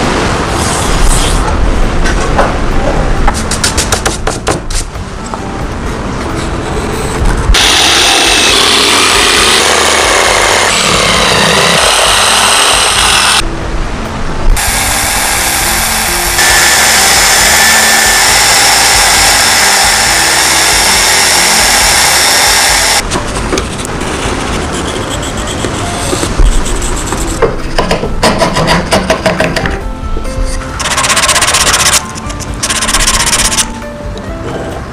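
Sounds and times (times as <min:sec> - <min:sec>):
background music: 0:00.1 - 0:23.2, 0:25.5 - 0:34.9
belt sander grinding wood: 0:07.6 - 0:13.4, 0:14.6 - 0:23.0.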